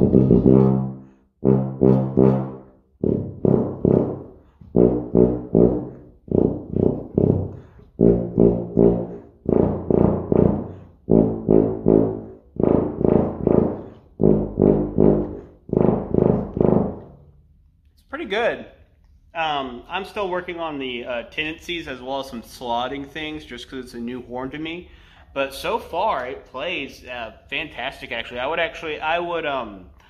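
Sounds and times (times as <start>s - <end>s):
tuba short tongued notes: 0.0s - 17.3s.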